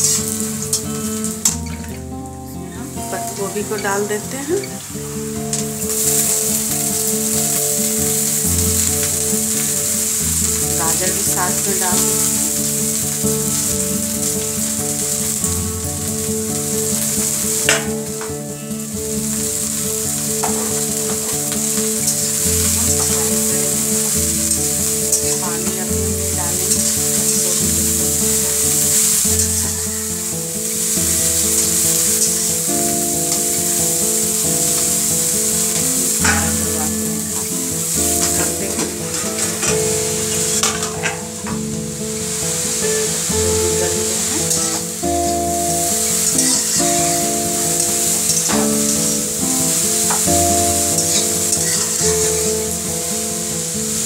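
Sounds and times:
background music: 0:00.0 - 0:54.0
vegetables sizzling in oil: 0:00.0 - 0:54.0
metal spatula stirring: 0:31.1 - 0:35.0, 0:35.6 - 0:41.4.

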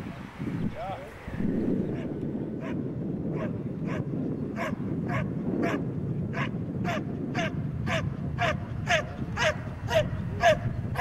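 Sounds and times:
dog barking: 0:02.0 - 0:05.8, 0:06.4 - 0:11.0.

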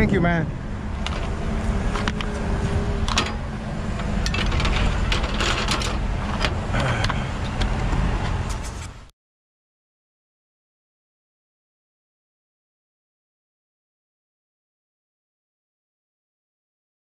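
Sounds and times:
low engine rumble: 0:00.0 - 0:09.1
metal couplings clinking on metal deck: 0:03.0 - 0:06.6.

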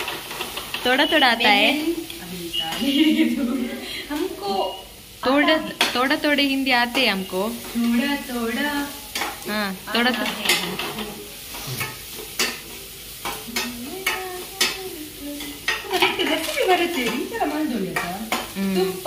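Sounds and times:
food sizzling in a pan: 0:00.0 - 0:19.0
metal spoon clinking and scraping pan: 0:08.9 - 0:09.4, 0:10.0 - 0:18.6.

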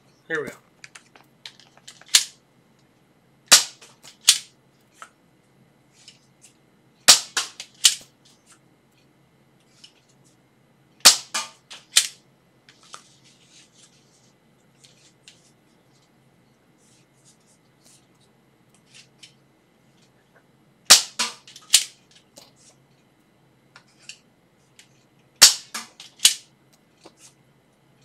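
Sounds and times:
faint handling rustle: 0:12.7 - 0:16.2.

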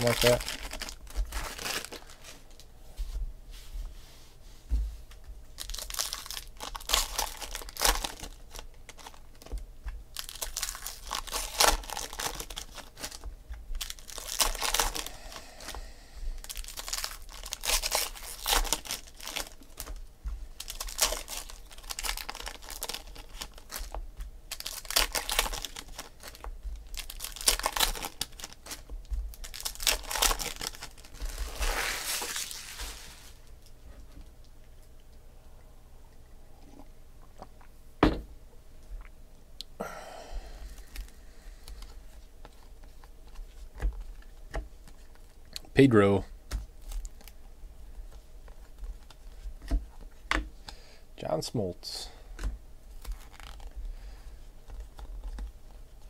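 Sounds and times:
foil packs tearing and crinkling: 0:00.0 - 0:02.5, 0:05.6 - 0:15.8, 0:16.4 - 0:33.5, 0:46.8 - 0:47.4, 0:52.9 - 0:54.1.

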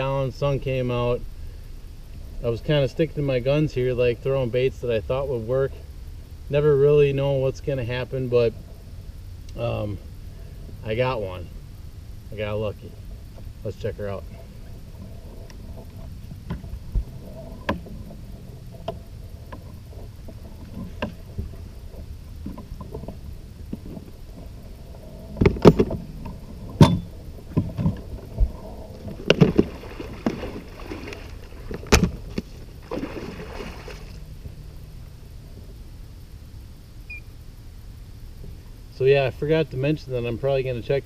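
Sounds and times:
fish splashing in net: 0:32.8 - 0:34.2.

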